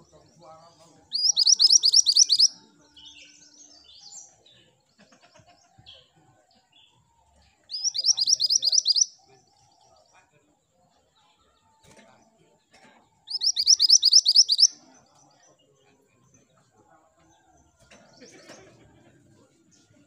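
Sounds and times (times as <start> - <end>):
soft bird chirps: 0.0 - 5.0, 6.7 - 10.3, 13.2 - 16.5
bird singing high rising notes: 1.1 - 2.5, 7.7 - 9.1, 13.3 - 14.7.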